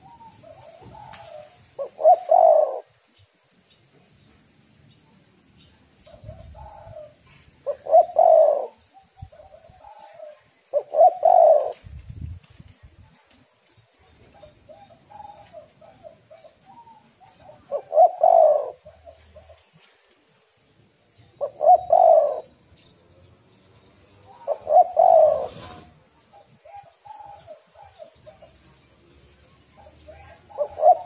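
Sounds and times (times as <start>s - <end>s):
dove cooing: 0.0s - 3.0s, 6.0s - 11.9s, 14.2s - 20.0s, 21.4s - 22.7s, 24.3s - 28.7s, 29.5s - 31.0s.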